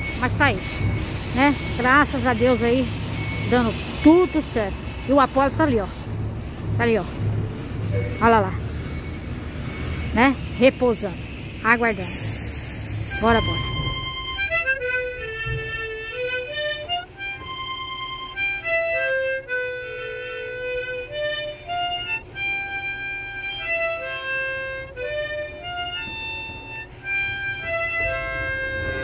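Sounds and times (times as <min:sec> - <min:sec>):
held note melody: 0:07.8 - 0:11.2, 0:13.0 - 0:29.0.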